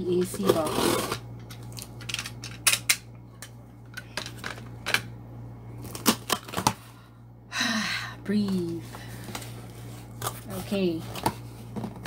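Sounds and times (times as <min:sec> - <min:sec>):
low steady hum: 0:00.0 - 0:12.0
tape and plastic rustling: 0:05.8 - 0:06.8, 0:08.4 - 0:12.0.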